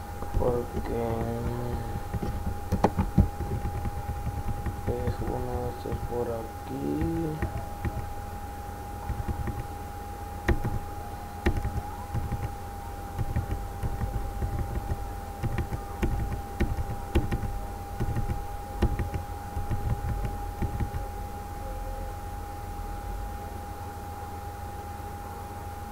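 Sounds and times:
thin whine: 0:00.0 - 0:25.9
laptop clicks and taps: 0:00.2 - 0:06.2, 0:06.9 - 0:08.1, 0:09.1 - 0:09.7, 0:10.5 - 0:10.8, 0:11.4 - 0:12.6, 0:13.2 - 0:21.1.

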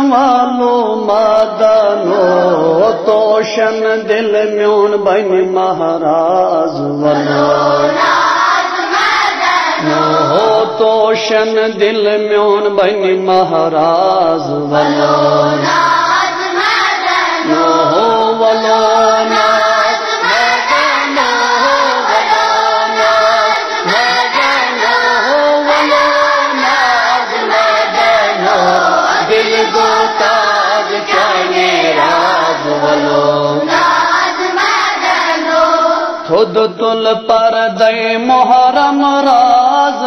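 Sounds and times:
children singing in chorus: 0:07.1 - 0:10.7, 0:14.8 - 0:36.3.

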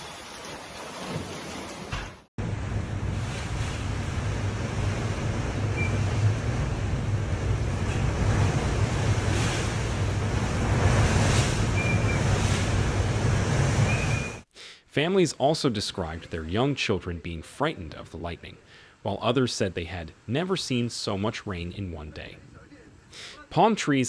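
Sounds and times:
faint high whistles: 0:13.9 - 0:14.4.

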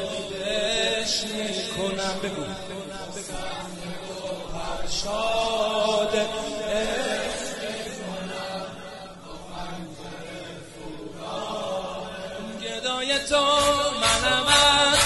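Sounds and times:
male choir chanting: 0:00.0 - 0:15.0
instrumental accompaniment with percussion: 0:13.6 - 0:15.0.

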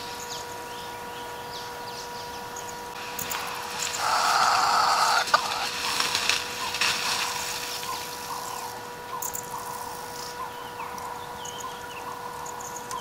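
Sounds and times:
small birds chirping faintly: 0:00.0 - 0:13.0
leaves and branches rustling: 0:02.0 - 0:11.2
branch snapping: 0:03.2 - 0:08.7.

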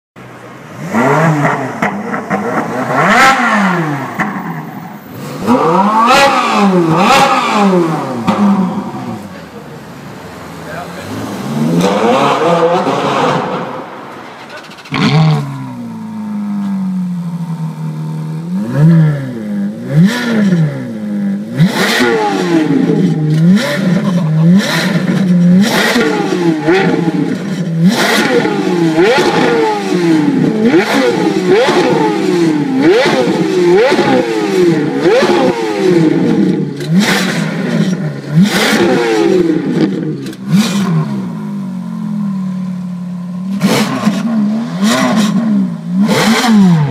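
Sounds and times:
car engine revving: 0:00.2 - 0:46.9
exhaust cracks: 0:11.7 - 0:17.7, 0:21.6 - 0:41.6.

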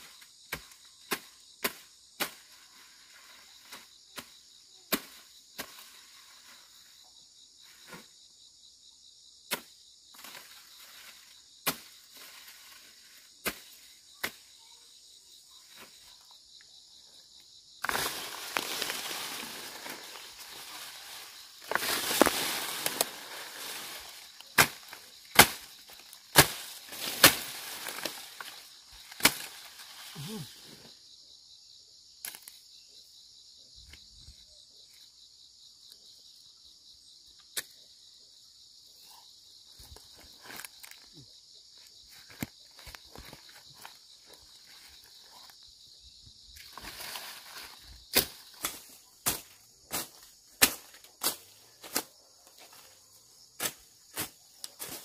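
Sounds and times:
insects buzzing: 0:00.0 - 0:55.0
vegetation rustling and tearing: 0:17.8 - 0:30.2.

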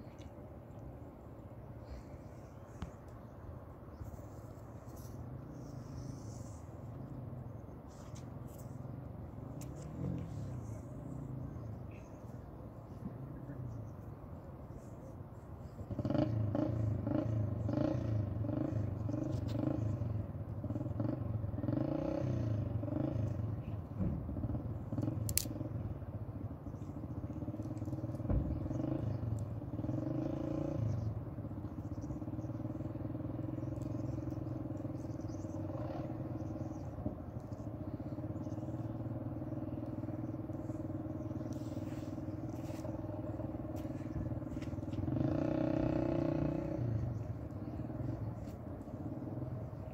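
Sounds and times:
engine running: 0:15.7 - 0:49.9.

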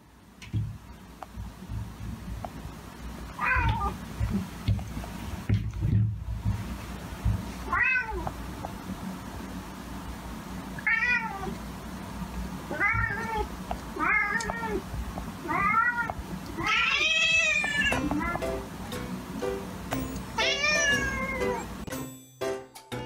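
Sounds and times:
cat meowing: 0:03.4 - 0:04.0, 0:07.7 - 0:08.2, 0:12.7 - 0:18.4, 0:20.4 - 0:21.7.

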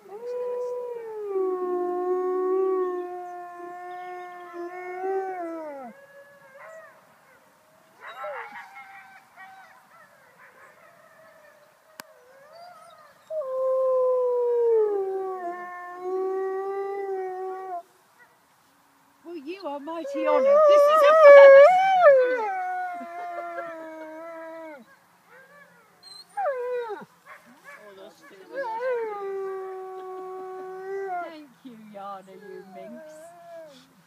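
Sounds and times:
wolf howling: 0:20.0 - 0:24.9.

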